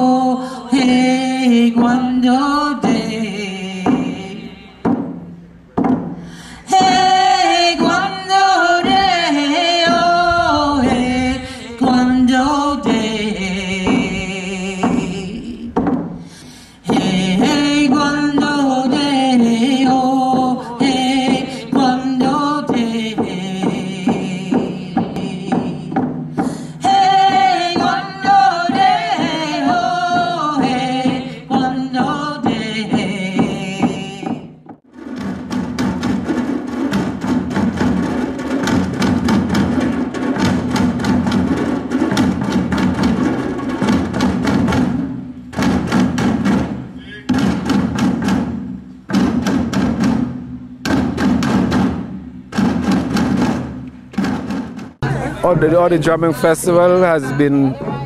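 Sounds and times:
women singing together: 0:00.0 - 0:04.8, 0:06.6 - 0:15.8, 0:16.8 - 0:26.1, 0:26.7 - 0:34.6
hand drums beaten with sticks: 0:00.7 - 0:58.0.

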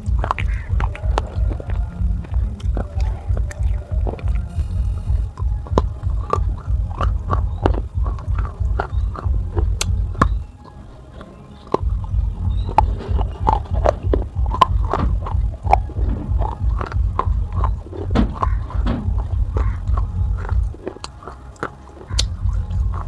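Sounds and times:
background music with low beat: 0:00.0 - 0:23.0
baked clay crunched between teeth: 0:00.0 - 0:23.0.

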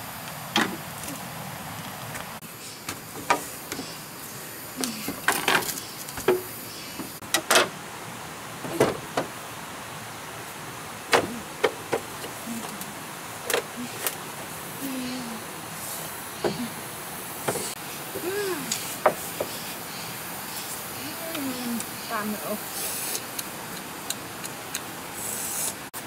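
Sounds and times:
steady background hiss: 0:00.0 - 0:26.0
bamboo poles knocking and clattering: 0:02.2 - 0:03.9, 0:04.8 - 0:07.8, 0:11.1 - 0:12.4
bamboo creaking: 0:04.8 - 0:07.8, 0:17.6 - 0:19.6.

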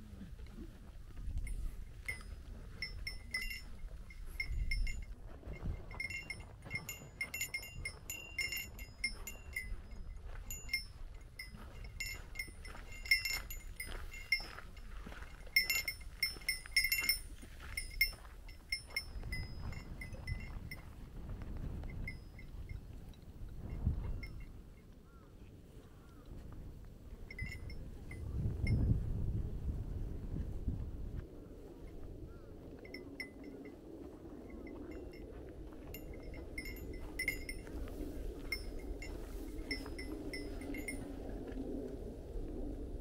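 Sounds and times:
small metal bell jingling: 0:01.4 - 0:21.0, 0:21.7 - 0:24.6, 0:27.3 - 0:29.0, 0:32.8 - 0:33.8, 0:34.4 - 0:41.2.

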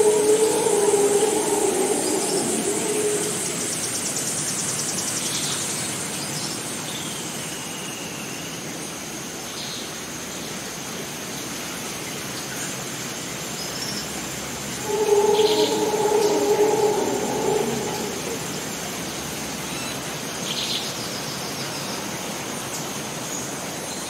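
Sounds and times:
high-pitched insect drone: 0:00.0 - 0:04.2, 0:14.7 - 0:19.4.

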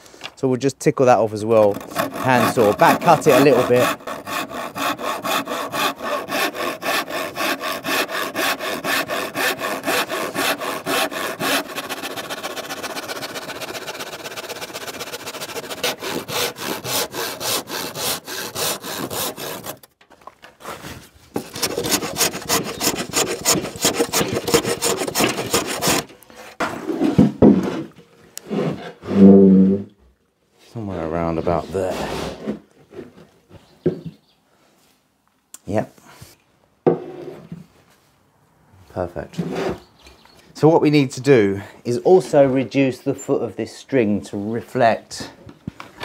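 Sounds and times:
hand saw cutting wood: 0:01.4 - 0:20.0, 0:20.6 - 0:27.8, 0:31.5 - 0:32.6.

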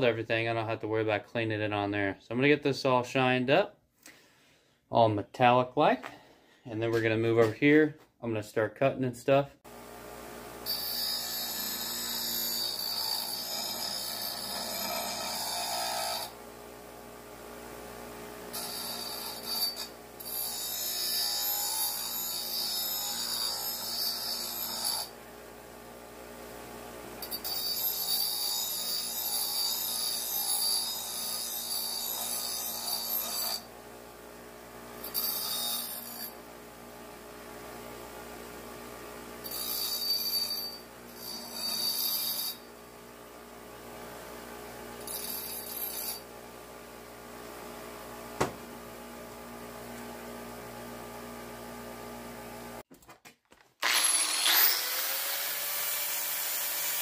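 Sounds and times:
grinder wheel grinding steel: 0:10.6 - 0:16.4, 0:18.5 - 0:25.2, 0:27.2 - 0:33.7, 0:35.0 - 0:36.4, 0:39.4 - 0:42.7, 0:45.0 - 0:46.3, 0:53.8 - 0:57.0
grinder motor spinning: 0:53.8 - 0:57.0.

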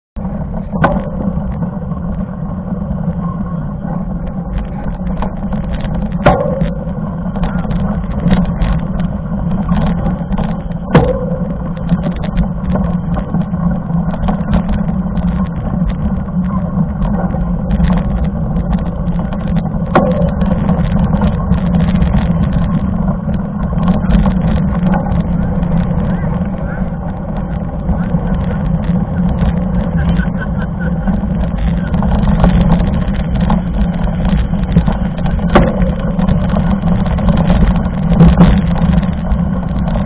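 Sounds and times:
bike riding on gravel: 0:00.2 - 0:40.0
sharp knocks: 0:06.1 - 0:09.0, 0:09.7 - 0:13.3, 0:34.2 - 0:39.3.

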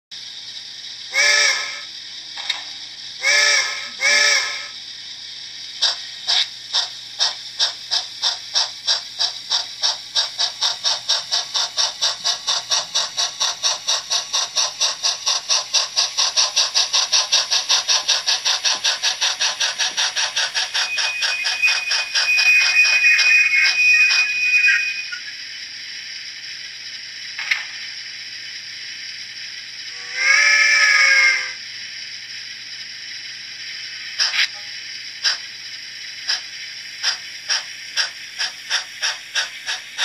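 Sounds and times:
steam exhaust chuffs: 0:00.2 - 0:02.1, 0:03.0 - 0:40.0
model train whistle: 0:01.1 - 0:01.9, 0:03.2 - 0:04.8, 0:20.6 - 0:25.3, 0:29.9 - 0:31.6.

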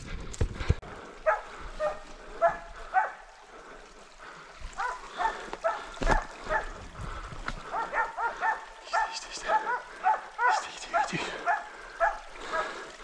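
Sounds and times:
dogs barking: 0:01.2 - 0:03.3, 0:04.7 - 0:06.8, 0:07.6 - 0:12.8.

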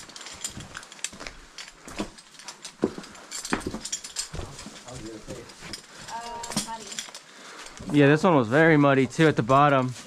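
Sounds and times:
clicks and clatters: 0:00.0 - 0:07.9.

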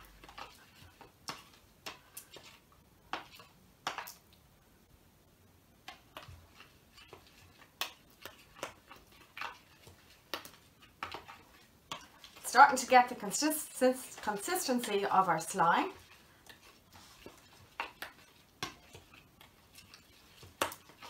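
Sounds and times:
spoon scraping plastic bowl: 0:05.9 - 0:21.0.

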